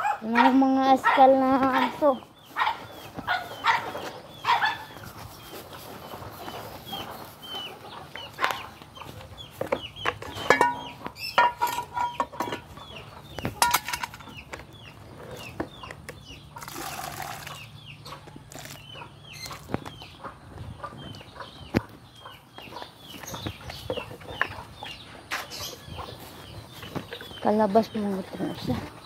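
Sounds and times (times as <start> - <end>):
chickens peeping: 0.0 - 29.0.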